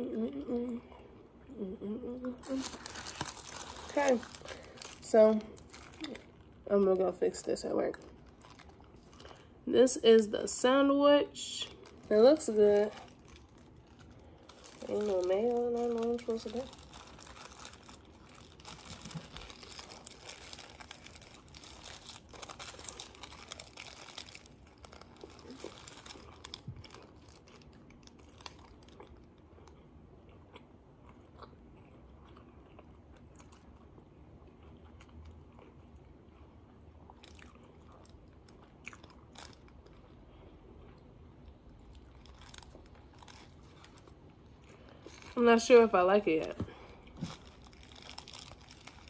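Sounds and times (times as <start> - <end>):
paper wrapper crinkling: 2.4 - 9.5, 11.4 - 29.3, 39.0 - 39.9, 41.8 - 49.0
chewing with soft crunches: 7.9 - 9.6, 12.7 - 45.8.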